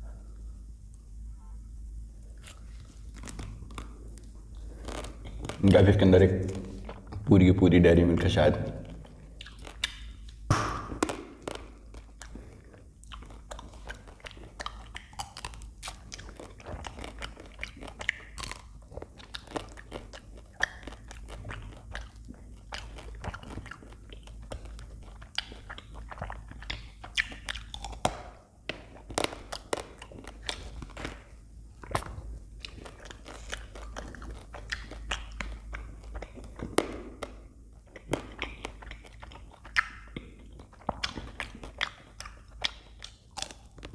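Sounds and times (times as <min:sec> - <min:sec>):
chewing ice cream bar: 0:02.3 - 0:07.2, 0:08.6 - 0:43.9
chocolate shell crunching: 0:08.9 - 0:43.9.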